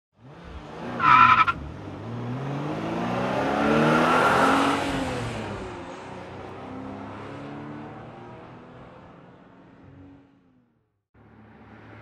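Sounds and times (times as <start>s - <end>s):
tyre squeal: 1.0s - 1.6s.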